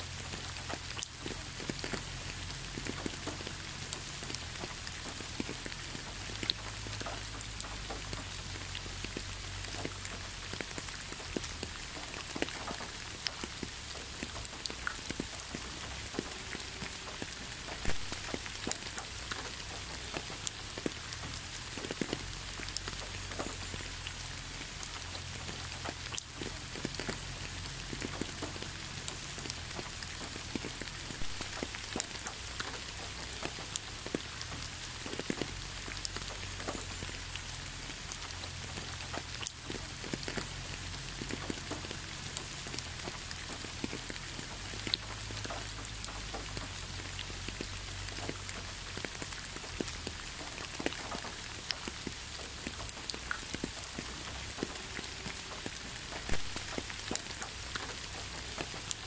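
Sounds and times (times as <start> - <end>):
water drips and splashes: 0.0 - 59.0
waterfall splashing: 15.8 - 20.5, 29.8 - 33.0, 54.8 - 57.6.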